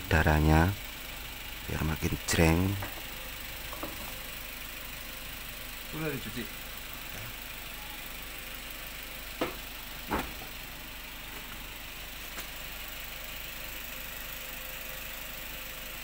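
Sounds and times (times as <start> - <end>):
car engine idling: 0.0 - 16.0
knocks of air filter housing: 2.8 - 3.1, 3.7 - 4.2, 9.4 - 10.6.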